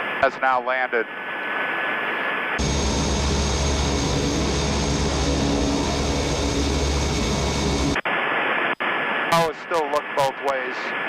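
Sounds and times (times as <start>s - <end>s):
propeller drone: 2.6s - 8.0s
turboprop engine whine: 2.6s - 8.1s.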